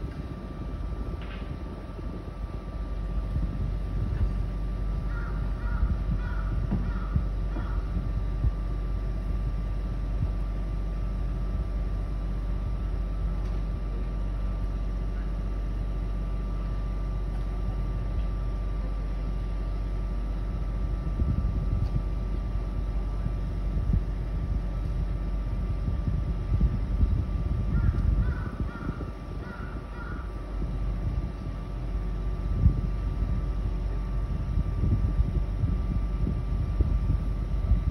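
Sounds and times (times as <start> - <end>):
construction machinery rumbling: 0.0 - 37.9
machinery high whine: 0.0 - 37.9
crows cawing: 5.0 - 8.0, 27.7 - 30.4.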